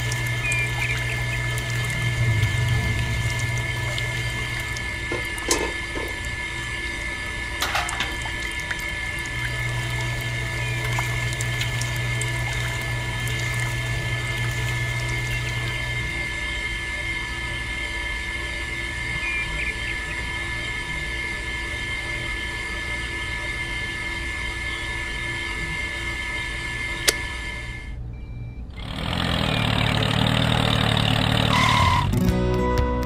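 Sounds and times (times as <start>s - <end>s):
liquid trickling into bucket: 0.0s - 6.9s, 7.6s - 16.0s
small electric motor hum: 0.0s - 28.0s.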